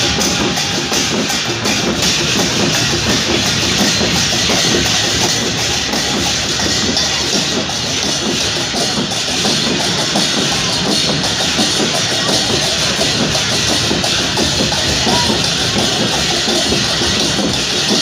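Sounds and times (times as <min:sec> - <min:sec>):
music: 0:00.0 - 0:18.0
crowd shouting: 0:12.2 - 0:17.7.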